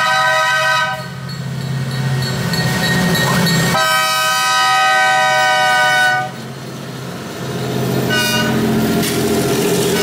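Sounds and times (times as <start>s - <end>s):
locomotive air horn: 0.0s - 1.2s, 3.8s - 6.4s, 8.1s - 8.7s
diesel locomotive rumble: 0.0s - 10.0s.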